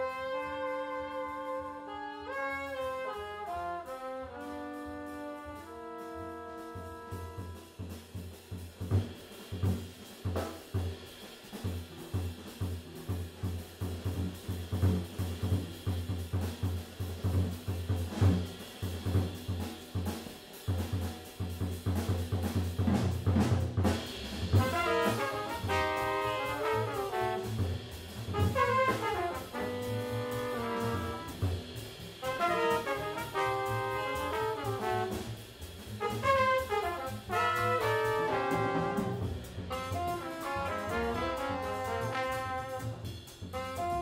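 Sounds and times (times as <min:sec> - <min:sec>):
horns playing a melody: 0:00.0 - 0:08.0, 0:24.5 - 0:31.6, 0:32.2 - 0:44.0
drum kit and bass groove: 0:00.0 - 0:44.0.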